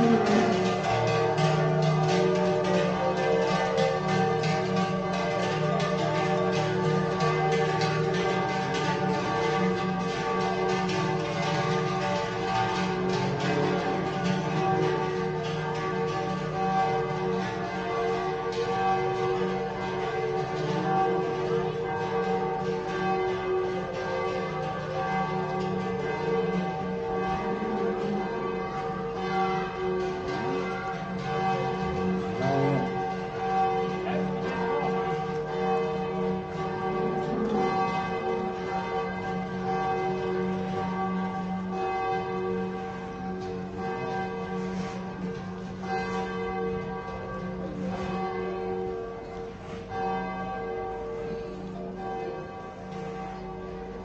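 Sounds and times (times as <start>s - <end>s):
cowbells jangling: 0.0s - 21.2s
large bells ringing: 0.0s - 54.0s.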